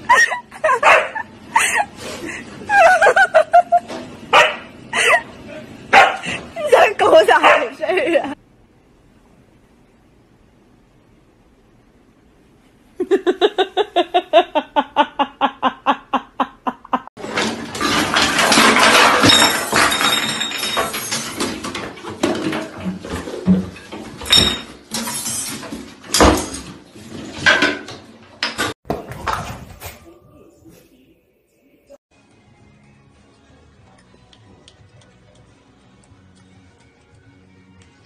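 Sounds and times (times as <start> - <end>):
kittens clattering in bathtub: 17.2 - 30.0.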